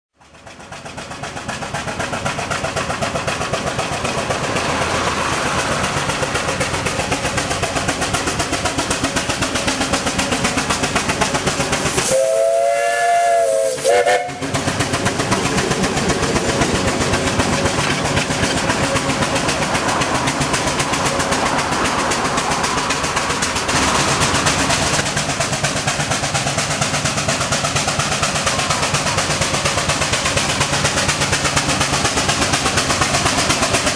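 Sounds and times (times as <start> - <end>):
steam engine working: 0.2 - 33.9
steam whistle: 11.9 - 14.6.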